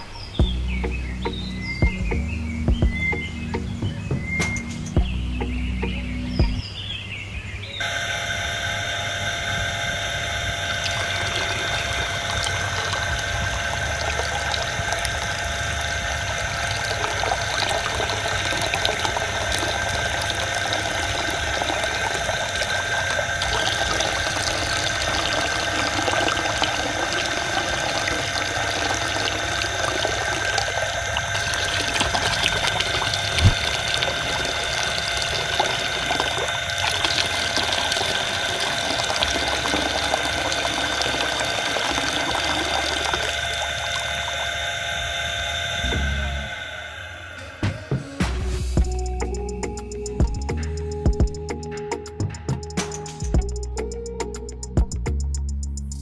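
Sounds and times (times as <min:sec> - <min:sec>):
water pump whining: 0:07.8 - 0:50.4
water pouring into pond: 0:09.7 - 0:45.8.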